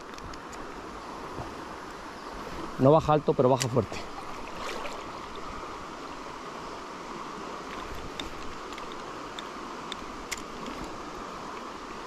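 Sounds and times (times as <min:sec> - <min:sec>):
light clicks: 0:00.0 - 0:00.8, 0:03.5 - 0:04.0, 0:07.7 - 0:11.7
river water rushing: 0:00.0 - 0:12.0.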